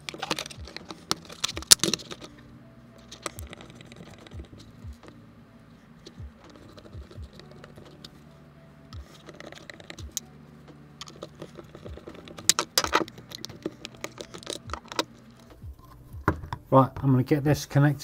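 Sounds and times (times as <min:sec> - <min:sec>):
screwdriver clicking and tapping: 0:00.0 - 0:02.3, 0:11.0 - 0:15.6.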